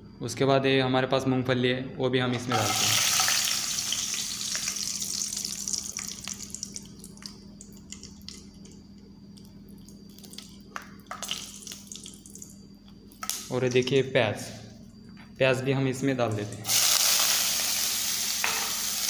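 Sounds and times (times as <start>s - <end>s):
seeds frying in hot oil: 2.5s - 13.4s, 16.7s - 19.0s
oil popping and crackling: 2.6s - 8.8s, 9.4s - 12.5s.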